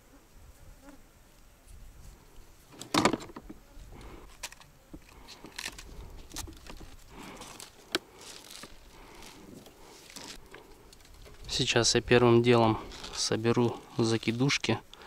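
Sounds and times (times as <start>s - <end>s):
fishing tackle clicking and rustling: 4.2s - 11.5s.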